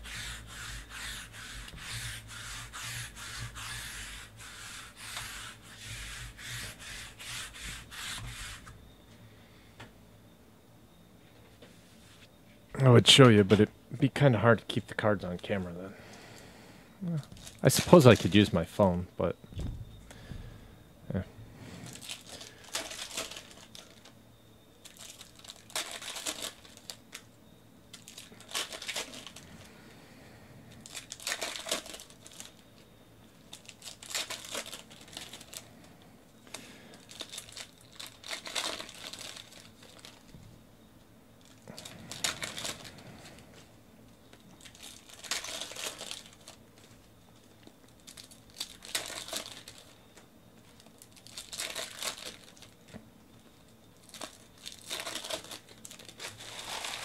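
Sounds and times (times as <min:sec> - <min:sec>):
foil wrappers crinkling and tearing: 0:17.3 - 0:18.6, 0:21.8 - 0:24.1, 0:24.8 - 0:27.3, 0:27.9 - 0:29.5, 0:30.8 - 0:32.6, 0:33.4 - 0:35.7, 0:36.5 - 0:40.3, 0:41.4 - 0:43.4, 0:44.4 - 0:53.0, 0:54.0 - 0:57.0.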